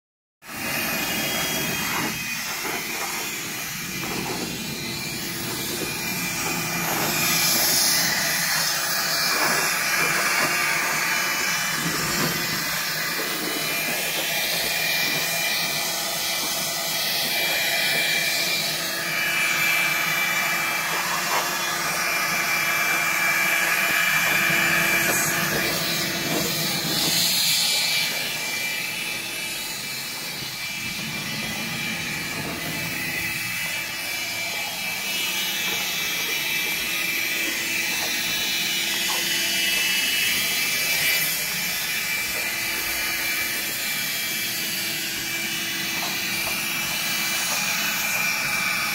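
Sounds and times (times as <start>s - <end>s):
electric machine whining: 0.4s - 48.9s.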